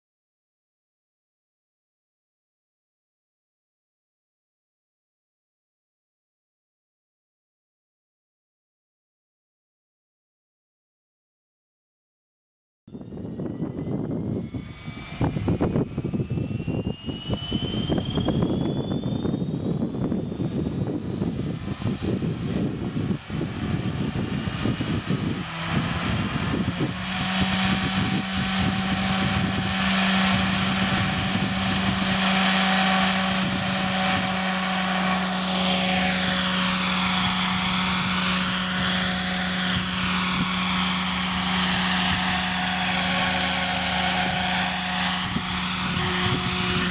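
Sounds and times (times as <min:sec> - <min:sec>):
rc helicopter motor and rotor whine: 0:12.9 - 0:46.9.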